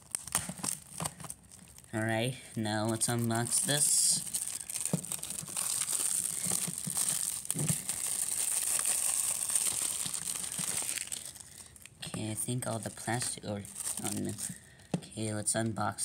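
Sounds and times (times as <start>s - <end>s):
plastic shrink wrap crinkling: 0.0s - 14.8s.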